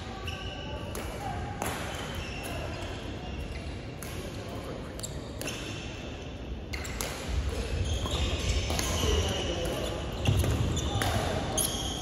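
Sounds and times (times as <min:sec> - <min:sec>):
racket hitting shuttlecock: 0:06.8 - 0:07.8.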